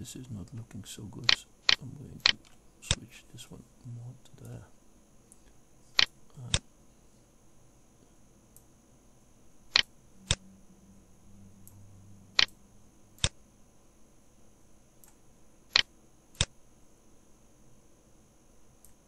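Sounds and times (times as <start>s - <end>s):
computer mouse clicking: 12.4s - 12.6s, 13.2s - 13.4s, 15.0s - 16.5s.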